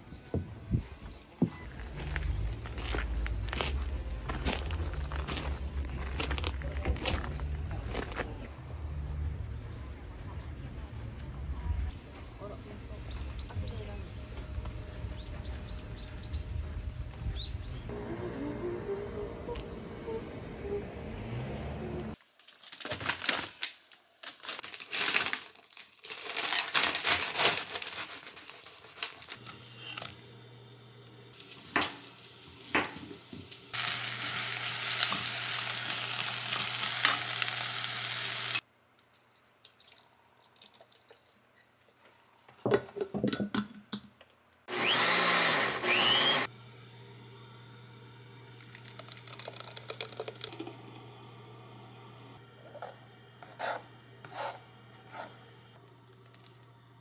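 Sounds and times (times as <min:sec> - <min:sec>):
paper bag and box rustling: 0:22.2 - 0:30.2
vegetables sizzling in pot: 0:31.4 - 0:38.6
blender running: 0:33.8 - 0:38.6, 0:44.7 - 0:46.5
puree pouring into pot: 0:39.1 - 0:41.6, 0:48.4 - 0:51.3.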